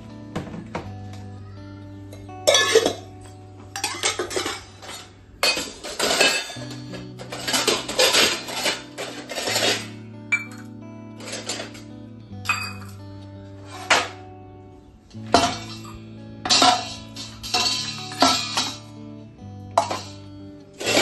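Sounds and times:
background music: 0.0 - 21.0
steel utensils clattering: 2.5 - 3.1, 3.8 - 11.9, 12.5 - 13.0, 13.6 - 14.2, 15.2 - 18.9, 19.8 - 21.0.

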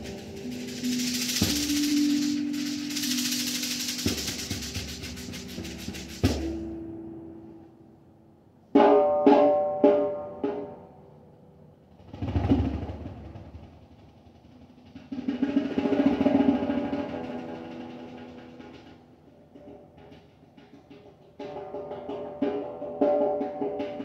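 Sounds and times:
ringing pitched percussion strikes: 0.0 - 7.4.

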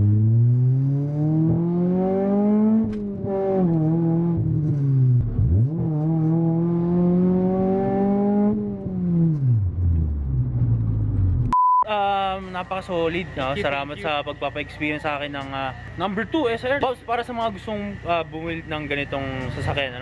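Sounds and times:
car engine revving: 0.0 - 11.5.

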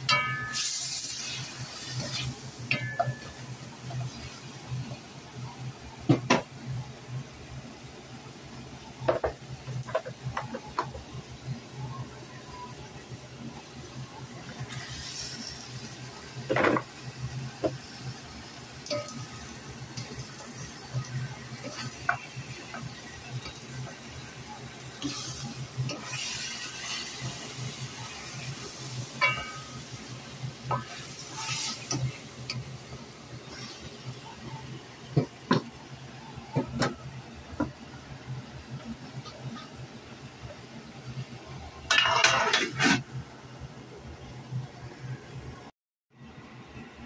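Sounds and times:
food sizzling in a wok: 0.0 - 44.0.

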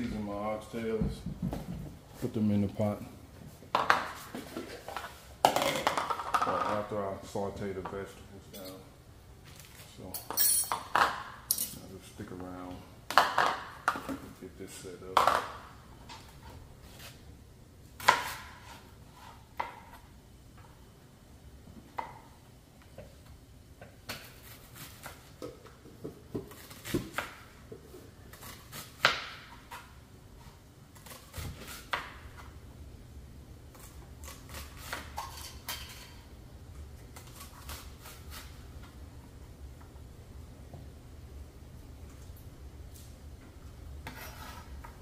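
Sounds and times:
low steady hum: 0.0 - 45.0
utensils and dishes clinking: 10.2 - 10.8.

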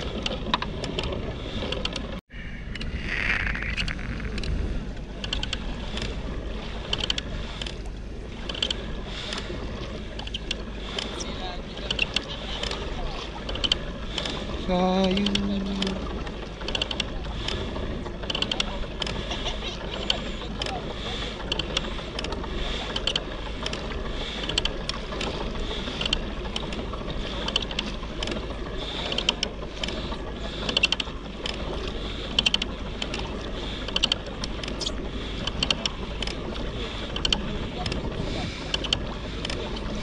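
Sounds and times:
mechanism clicking and ticking: 0.0 - 4.6, 5.2 - 6.2, 6.8 - 9.5, 10.2 - 39.9
low rumble: 0.0 - 30.5.

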